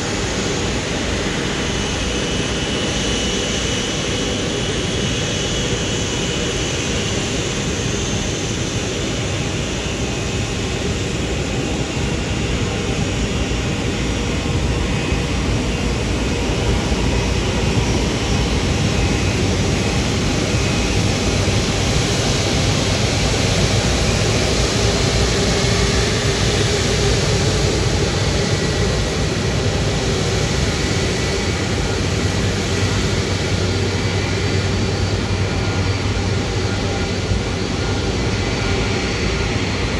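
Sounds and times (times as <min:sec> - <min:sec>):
jet engines taxiing: 0:00.0 - 0:39.9.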